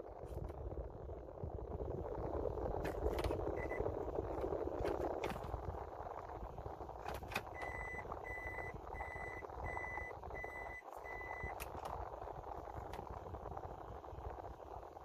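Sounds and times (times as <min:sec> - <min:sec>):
reverse warning beeps: 0:07.6 - 0:11.6.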